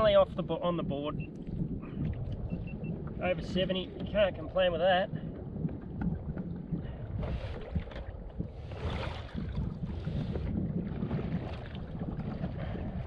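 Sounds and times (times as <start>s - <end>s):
wind buffeting microphone: 0.0s - 13.0s
water splashing: 5.2s - 13.0s.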